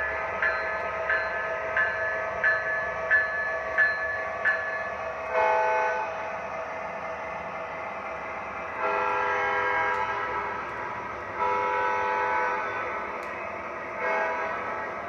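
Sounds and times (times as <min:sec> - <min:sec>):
electronic locomotive horn: 0:05.3 - 0:06.2, 0:08.8 - 0:10.7, 0:11.4 - 0:13.0, 0:14.0 - 0:14.9.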